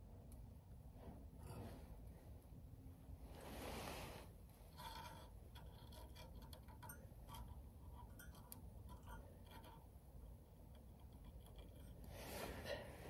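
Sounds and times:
light metal ticks and taps: 4.7s - 12.1s.

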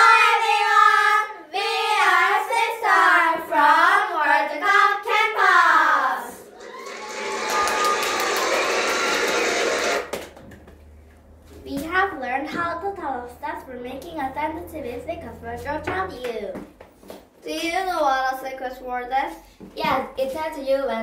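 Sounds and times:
girls singing in unison: 0.0s - 5.9s.

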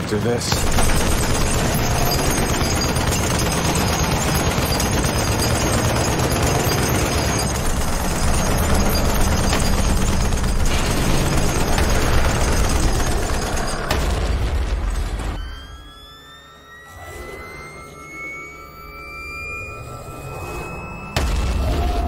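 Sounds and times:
film score music: 0.0s - 22.0s
gunfire: 0.5s - 14.9s
rising electronic whine: 15.4s - 21.5s.

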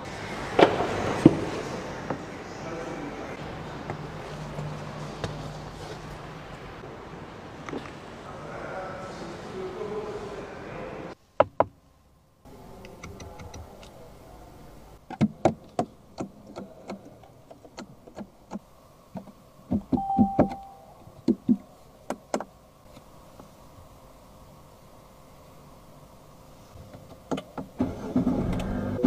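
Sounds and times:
short electronic beep: 20.0s - 20.9s.

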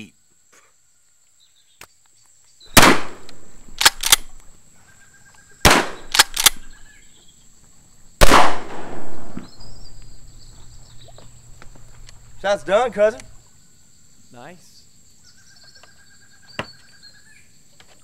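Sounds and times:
shotgun blasts: 2.7s - 4.3s, 5.6s - 6.7s, 8.2s - 9.8s
sharp cracks: 2.7s - 4.5s, 5.6s - 6.8s, 8.2s - 10.1s.

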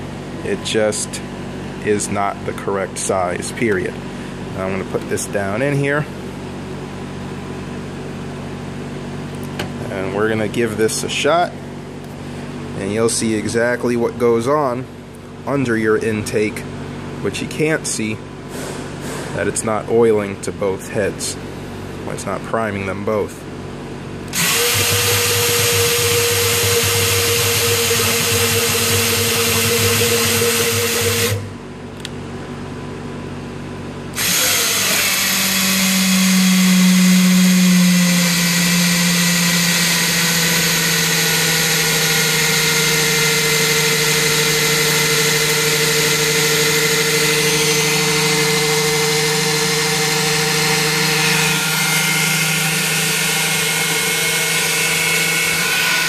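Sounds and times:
power drill spinning: 24.3s - 31.5s, 34.2s - 56.0s.

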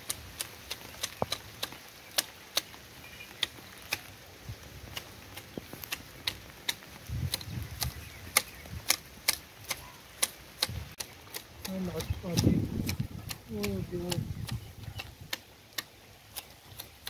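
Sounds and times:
hedge shears snipping: 0.0s - 4.1s, 4.9s - 17.0s.

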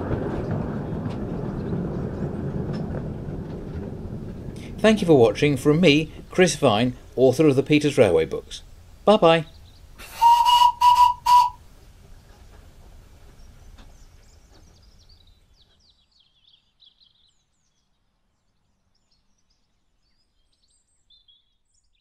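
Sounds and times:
faint birdsong: 4.2s - 22.0s
steam locomotive whistle toots: 10.0s - 11.7s.

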